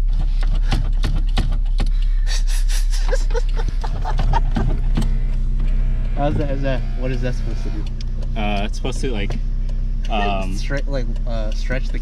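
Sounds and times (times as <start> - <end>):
car engine idling: 0.0 - 12.0
person laughing: 2.2 - 5.0
handbrake lever ratchet clicks: 7.8 - 12.0.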